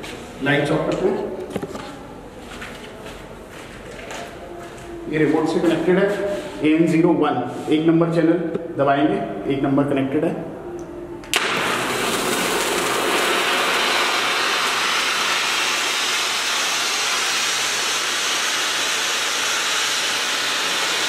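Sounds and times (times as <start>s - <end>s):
spark fountain hissing: 11.3s - 21.0s.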